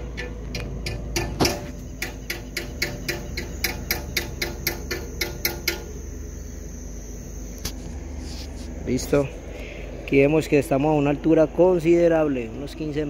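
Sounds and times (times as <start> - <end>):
rapid mechanical clicking: 0.0 - 6.0
steady low hum: 0.0 - 13.0.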